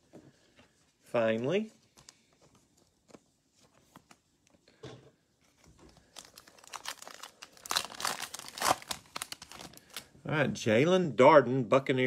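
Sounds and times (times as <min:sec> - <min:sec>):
card pack wrapper crinkling tearing: 0:05.9 - 0:10.1.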